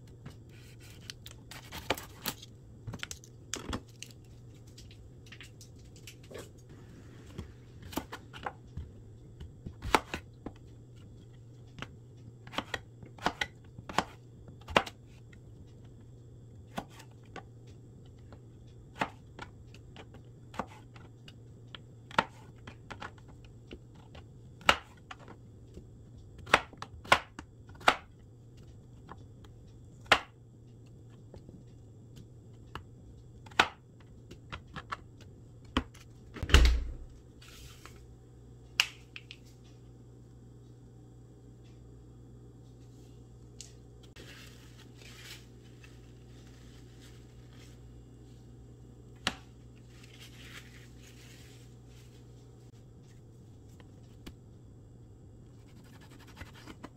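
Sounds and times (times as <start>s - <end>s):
knife chopping on plastic board: 9.7s - 10.6s, 12.5s - 15.0s, 26.4s - 28.1s, 30.0s - 30.3s.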